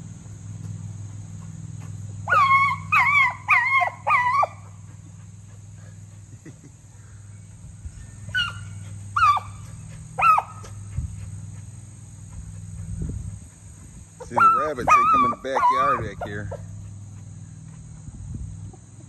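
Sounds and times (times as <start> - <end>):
dog barking in high yelps: 2.2 - 4.8, 8.3 - 10.8, 14.3 - 16.6.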